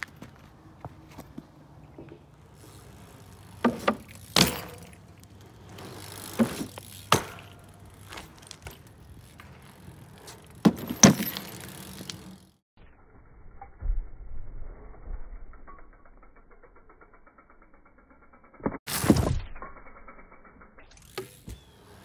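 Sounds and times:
bicycle tyres rolling on asphalt: 0.0 - 13.6, 20.0 - 22.0.

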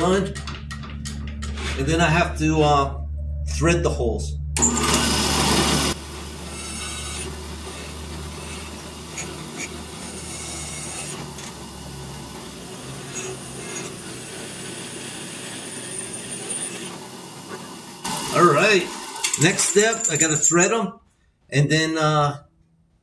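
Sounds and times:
drill press drilling metal: 4.6 - 20.0.

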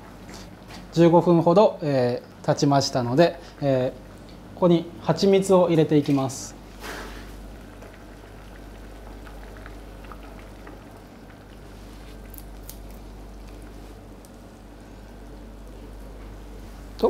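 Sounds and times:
water simmering in a pan: 6.6 - 15.9.

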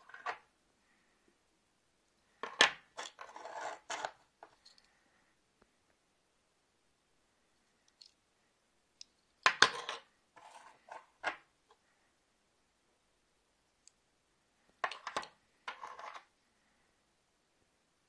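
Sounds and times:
watches scraping on table: 3.0 - 4.2.

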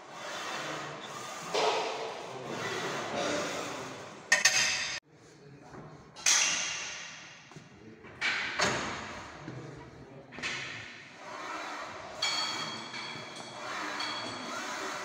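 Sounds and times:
metal bar and weight plates clanking: 12.1 - 14.5.

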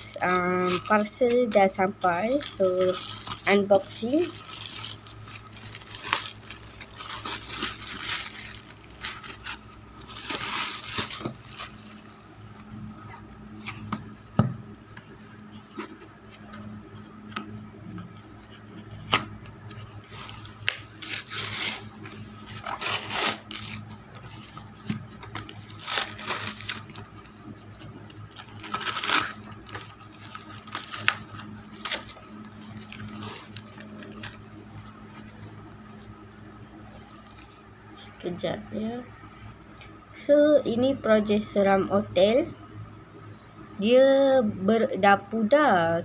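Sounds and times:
low hum: 0.0 - 46.0
paper tearing and crinkling: 0.2 - 13.9, 17.3 - 35.5.

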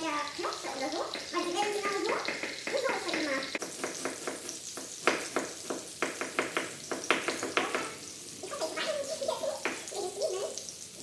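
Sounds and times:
knife chopping on wooden board: 2.2 - 7.9.

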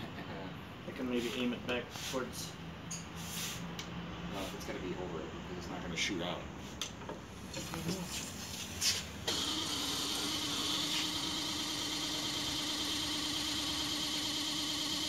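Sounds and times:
water pump humming and whining: 9.3 - 15.0.

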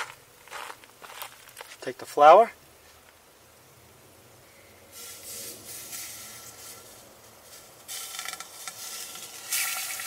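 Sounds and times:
liquid boiling and sizzling: 4.9 - 10.0.

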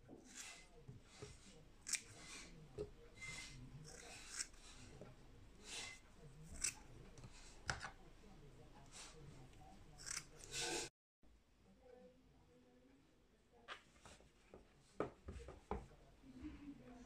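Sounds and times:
scissors snipping through hair: 1.8 - 2.2, 6.5 - 6.8, 10.0 - 10.5.

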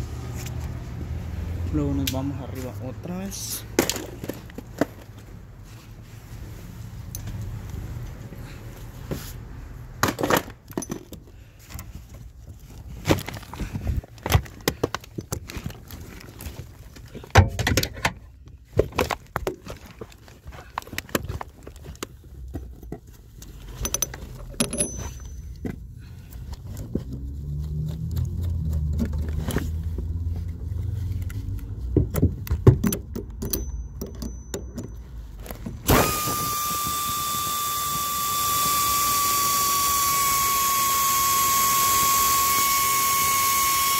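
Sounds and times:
tools clattering and knocking: 10.0 - 11.9, 13.1 - 25.8, 31.9 - 35.8
power tool motor whine: 35.9 - 43.9.

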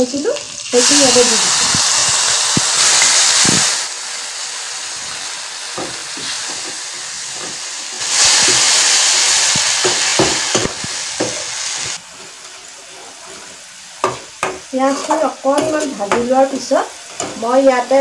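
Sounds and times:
paste sizzling in hot oil: 0.0 - 18.0
spoon scraping and knocking pan: 5.8 - 8.8, 9.5 - 11.5, 12.1 - 17.6.

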